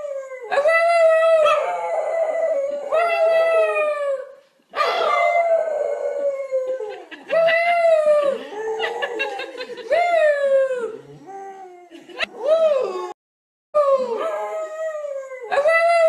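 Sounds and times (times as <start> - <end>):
woman howling: 4.8 - 13.2.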